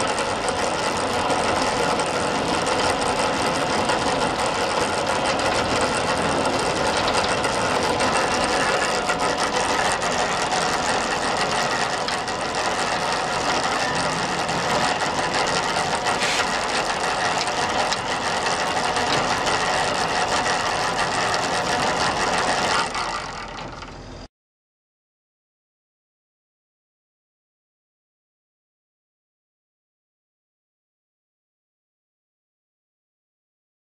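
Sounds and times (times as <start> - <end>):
spreader beaters clattering: 0.0 - 23.9
truck engine running: 0.0 - 24.2.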